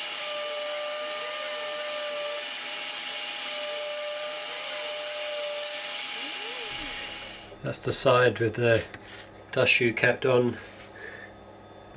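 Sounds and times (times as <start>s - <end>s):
router spindle whining while milling: 0.0s - 7.5s.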